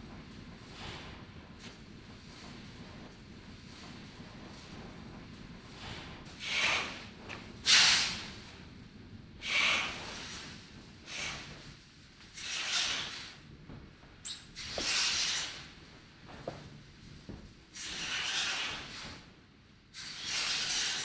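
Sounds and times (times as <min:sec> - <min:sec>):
hissing breath-like noise bursts: 0:05.8 - 0:08.4, 0:09.4 - 0:11.7, 0:12.4 - 0:13.4, 0:14.6 - 0:15.8, 0:17.7 - 0:19.2, 0:19.9 - 0:21.0.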